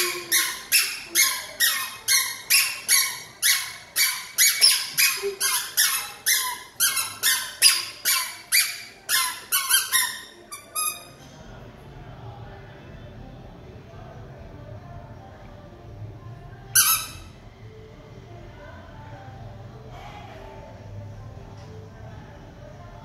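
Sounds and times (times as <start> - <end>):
squeaky sandals on tiled floor: 0.0 - 11.2, 16.8 - 17.4.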